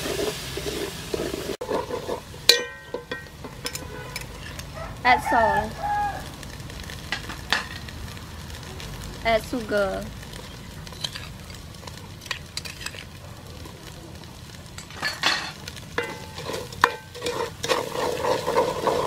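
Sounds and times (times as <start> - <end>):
wooden spoon scraping pot: 0.0 - 4.7, 16.0 - 19.0
paste sizzling in oil: 0.0 - 19.0.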